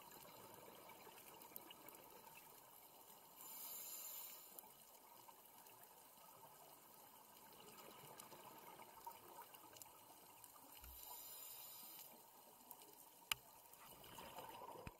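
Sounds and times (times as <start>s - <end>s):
exhaled bubbles hissing: 3.3s - 4.6s, 10.8s - 12.2s
small underwater clicks: 4.2s - 14.9s.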